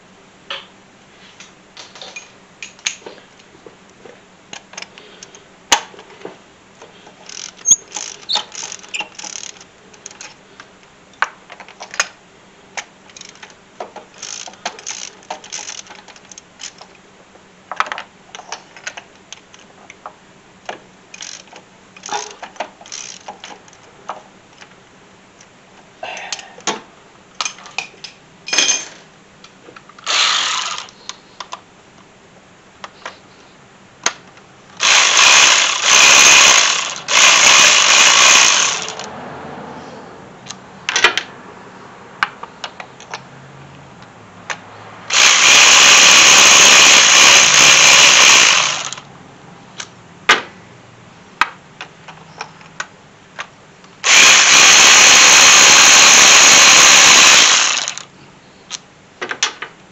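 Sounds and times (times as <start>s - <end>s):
hand tools clicking and knocking: 7.0s - 10.4s, 21.1s - 24.2s
electric ratchet spinning: 7.2s - 10.3s, 14.2s - 15.9s, 21.2s - 23.4s, 30.0s - 31.0s, 34.8s - 39.1s, 45.1s - 49.0s, 54.0s - 58.1s.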